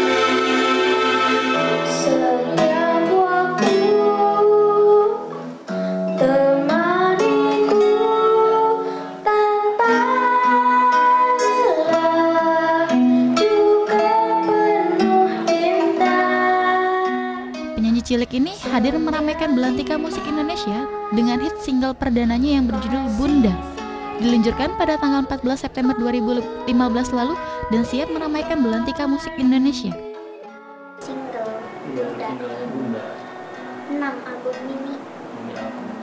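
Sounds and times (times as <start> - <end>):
girl singing slow song: 0.0 - 36.0
plucked guitar: 0.0 - 36.0.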